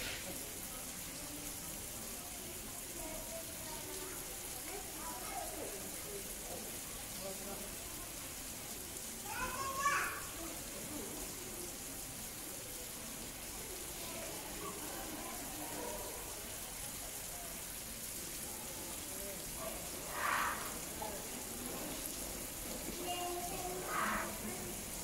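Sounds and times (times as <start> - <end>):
faint indistinct voices: 0.0 - 25.0
steady hiss: 0.0 - 25.0.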